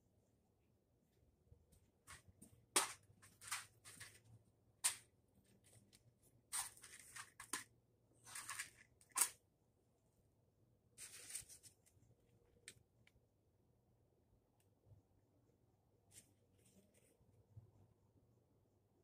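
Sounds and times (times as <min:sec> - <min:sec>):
hands rustling small objects: 0:02.8 - 0:09.4, 0:11.0 - 0:12.0.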